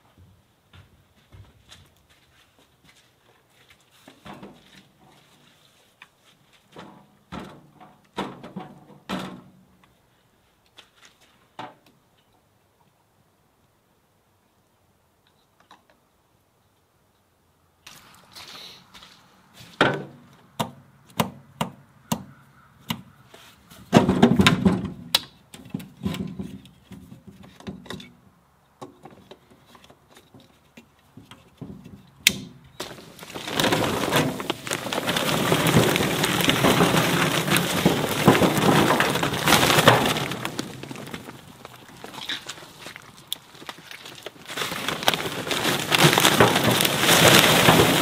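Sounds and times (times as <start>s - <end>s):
charcoal briquettes clattering: 6.6s - 9.6s, 30.0s - 48.0s.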